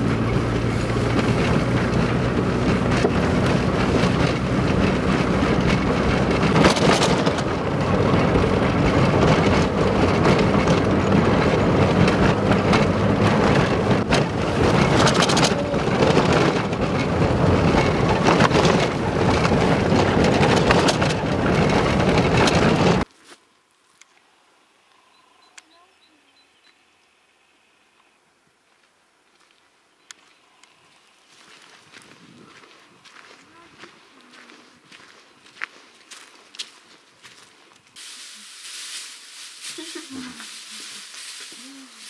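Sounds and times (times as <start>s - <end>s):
car engine and tyre noise: 0.0s - 23.1s, 26.8s - 33.5s
sharp knocks from bumps: 0.9s - 23.0s.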